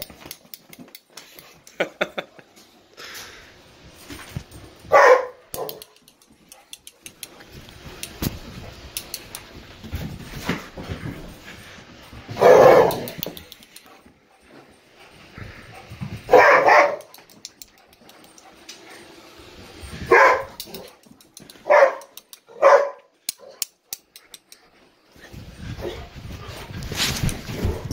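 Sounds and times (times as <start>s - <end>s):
dog barking: 4.9s - 5.9s, 12.4s - 13.1s, 16.3s - 17.2s, 20.1s - 20.6s, 21.6s - 23.6s.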